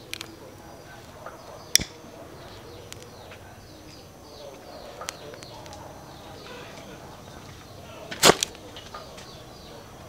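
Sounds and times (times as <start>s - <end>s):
birds chirping: 0.0s - 10.0s
lighter clicking: 1.8s - 2.0s.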